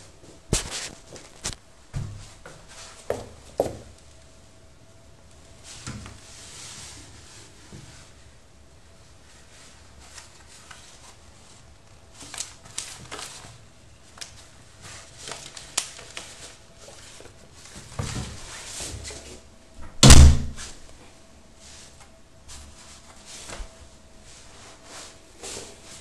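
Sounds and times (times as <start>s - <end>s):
loud thump: 19.8s - 20.7s.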